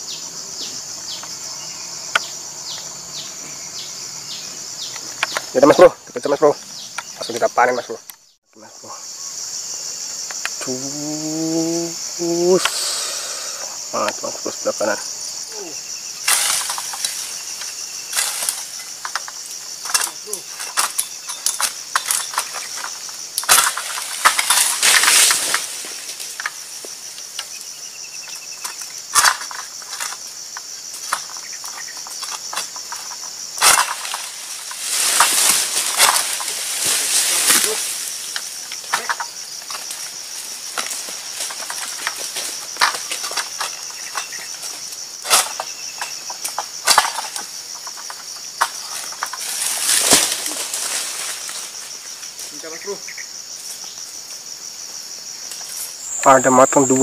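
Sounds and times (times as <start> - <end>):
insects droning: 0.0 - 57.0
leafy rustling: 14.0 - 57.0
sickle snapping fronds: 16.2 - 27.7, 28.6 - 53.0.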